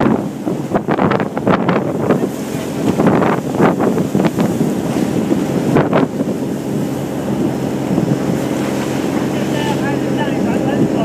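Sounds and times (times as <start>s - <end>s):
boat engine running: 0.0s - 11.0s
waves rushing along hull: 0.0s - 11.0s
wind buffeting microphone: 0.0s - 11.0s.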